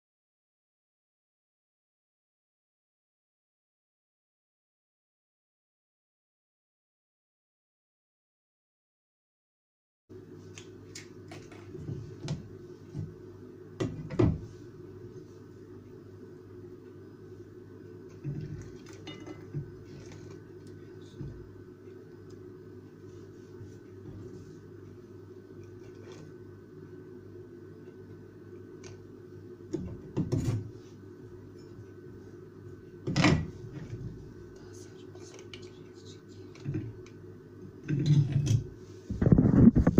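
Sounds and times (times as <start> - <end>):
steady low hum: 10.1 - 39.9.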